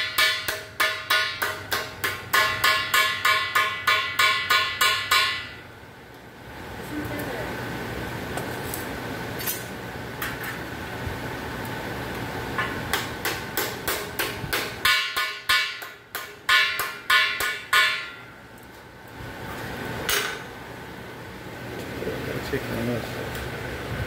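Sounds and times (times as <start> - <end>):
hammer blows on sheet steel: 0.0 - 5.6, 12.6 - 18.3
steady shop hum: 0.0 - 24.0.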